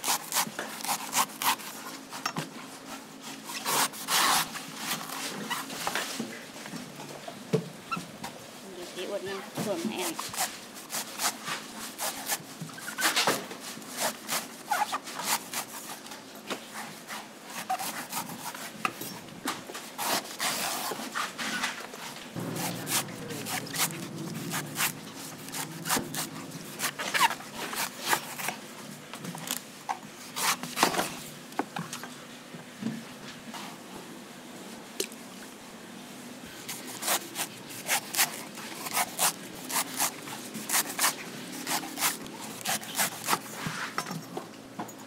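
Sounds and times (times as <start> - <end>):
knife chopping coconut husk: 22.4 - 28.6, 36.7 - 43.5.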